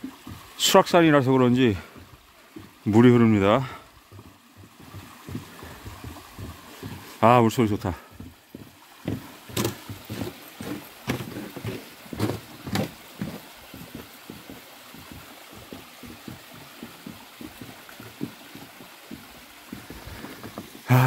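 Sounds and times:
stream trickling over rocks: 0.0 - 21.0
sharp knocks: 9.1 - 10.1.

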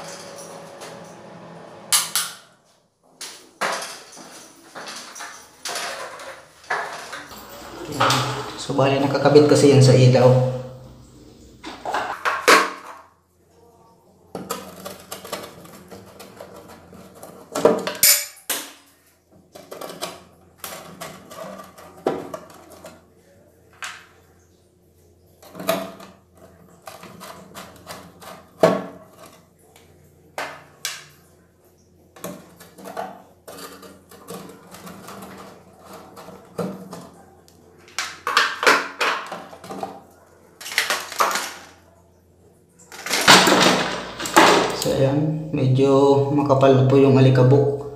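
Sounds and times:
clicks and scraping on plastic: 14.3 - 17.9, 25.4 - 31.1, 32.2 - 41.8.

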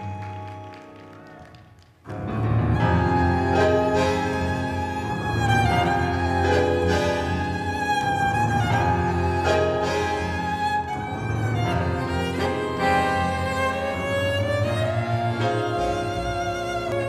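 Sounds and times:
tango music with violins: 0.0 - 17.0.

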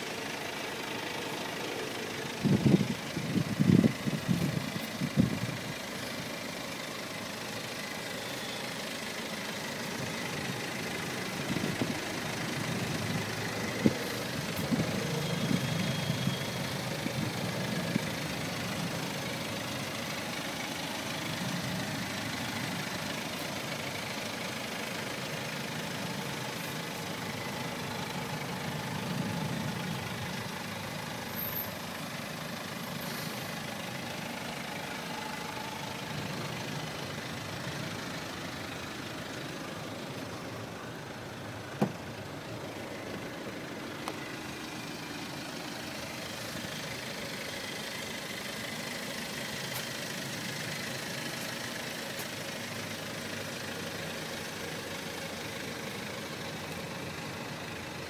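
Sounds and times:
diesel car engine idling: 0.0 - 58.0.

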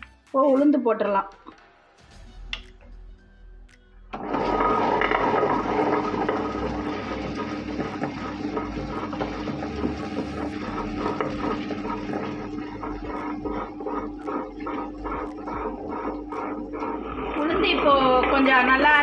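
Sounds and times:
motor hum: 4.1 - 19.0
stone grinder grinding: 4.2 - 19.0.

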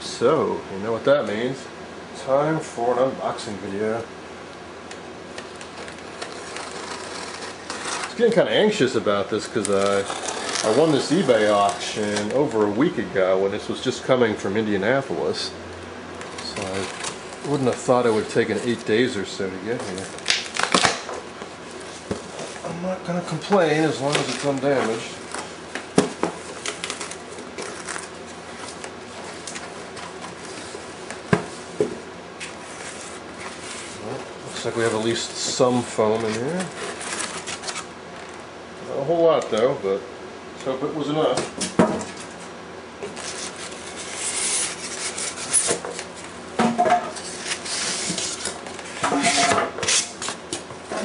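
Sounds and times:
styrofoam packing rubbing: 5.4 - 12.6, 16.2 - 22.7, 23.5 - 31.8, 32.4 - 37.9, 43.0 - 46.3, 47.1 - 51.0
cardboard flaps scraping: 5.6 - 8.4, 9.4 - 12.5, 16.3 - 19.0, 23.5 - 37.9
plastic bag crinkling: 23.8 - 25.3.

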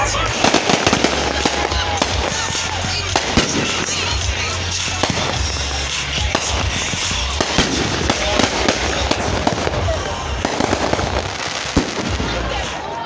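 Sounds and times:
firework crackling: 0.0 - 13.0
firework shells bursting: 0.3 - 12.8.

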